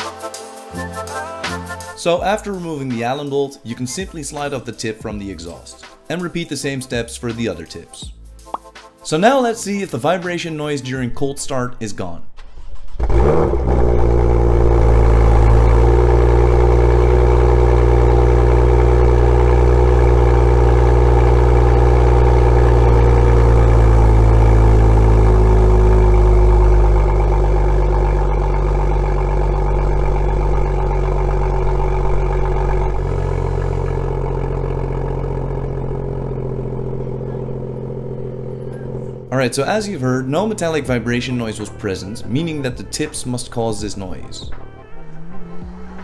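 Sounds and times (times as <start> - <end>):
car engine idling: 12.4 - 46.0.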